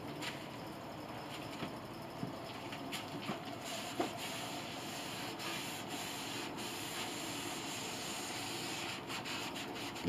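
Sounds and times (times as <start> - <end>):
cloth rubbing on wood: 3.6 - 10.0.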